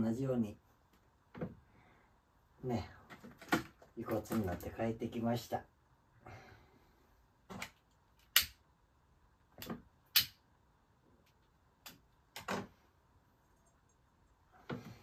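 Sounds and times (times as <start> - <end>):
sharp clicks: 7.6 - 8.6.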